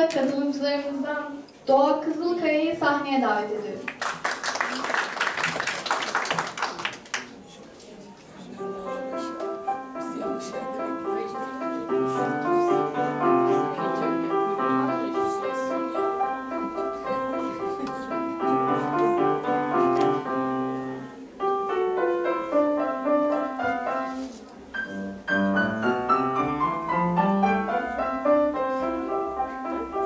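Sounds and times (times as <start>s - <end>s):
solo grand piano: 8.6s - 30.0s.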